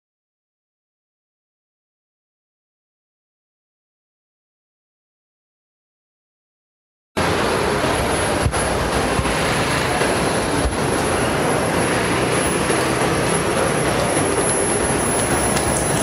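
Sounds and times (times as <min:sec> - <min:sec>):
city street traffic rush: 0:07.2 - 0:16.0.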